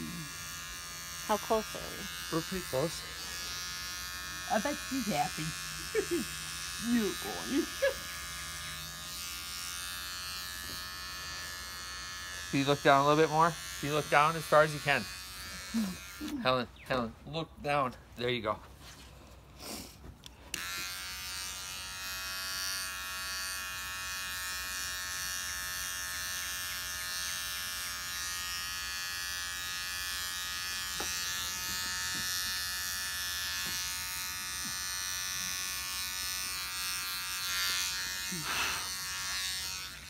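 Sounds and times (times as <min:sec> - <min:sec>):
electric trimmer buzzing: 0:00.0 - 0:16.7, 0:19.4 - 0:40.0.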